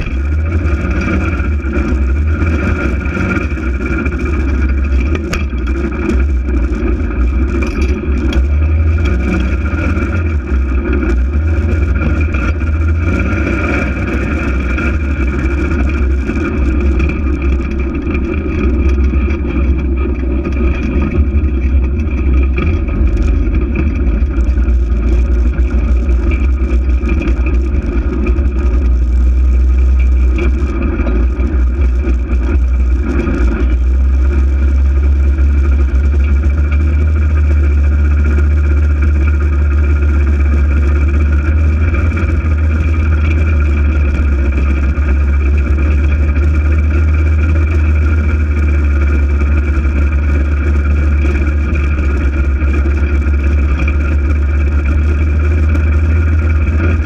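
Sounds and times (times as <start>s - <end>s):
engine running steady drone: 0.0s - 57.0s.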